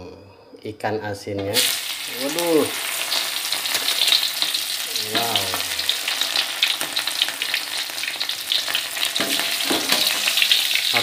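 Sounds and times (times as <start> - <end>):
fish frying in hot oil: 1.6 - 11.0.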